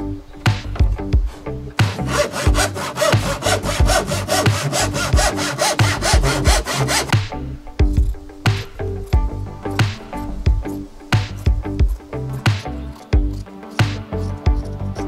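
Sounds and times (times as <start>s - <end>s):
plucked background music: 0.0s - 15.0s
handsaw cutting wood: 1.8s - 7.2s.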